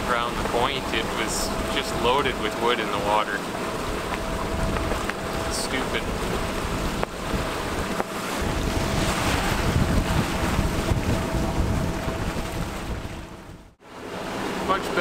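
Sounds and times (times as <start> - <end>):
water rushing past hull: 0.0 - 15.0
wind buffeting microphone: 3.6 - 13.8.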